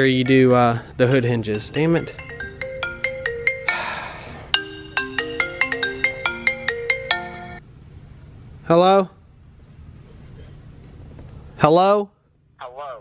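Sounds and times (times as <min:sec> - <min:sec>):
marimba ringtone melody: 0:00.0 - 0:07.6.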